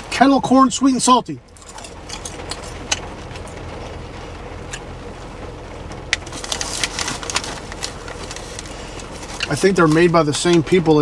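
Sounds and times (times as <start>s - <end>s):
rain on car roof: 2.4s - 11.0s.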